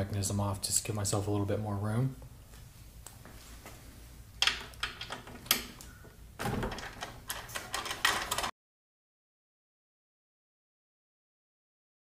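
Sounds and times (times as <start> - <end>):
tools knocking and rattling on engine: 6.4 - 8.5.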